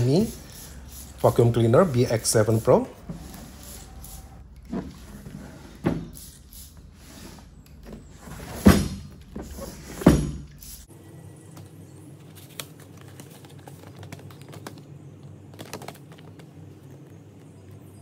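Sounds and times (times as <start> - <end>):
cardboard and paper rustling: 12.2 - 17.6.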